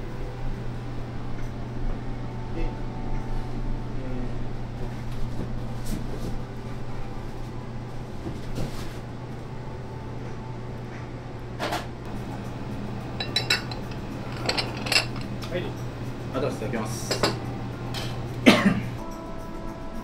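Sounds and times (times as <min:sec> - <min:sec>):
low hum: 0:09.5 - 0:16.3
dishes and cutlery clinking: 0:13.2 - 0:15.7, 0:17.0 - 0:18.6.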